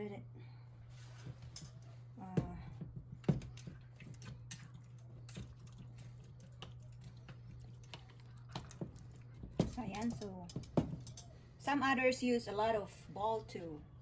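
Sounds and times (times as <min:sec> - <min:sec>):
steady low hum: 0:00.0 - 0:14.0
bowls and utensils clicking: 0:03.5 - 0:11.4.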